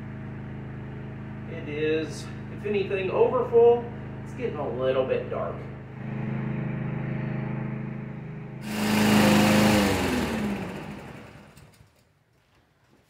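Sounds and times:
engine spinning down: 0.0s - 12.0s
push-mower engine running: 8.6s - 12.0s.

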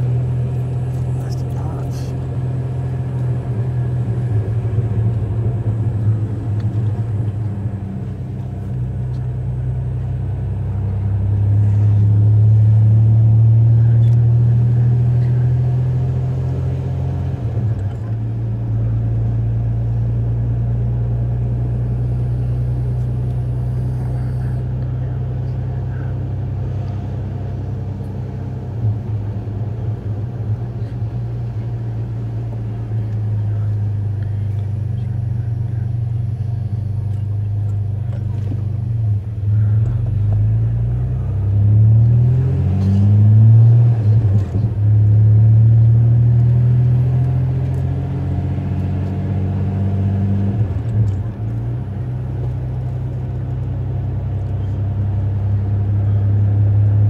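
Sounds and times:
truck engine drone from cab: 0.0s - 57.0s.

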